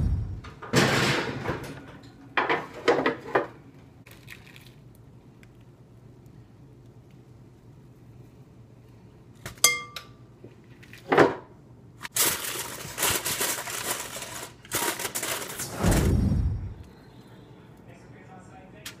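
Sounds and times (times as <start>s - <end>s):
plastic wrap crinkling: 12.0s - 15.7s.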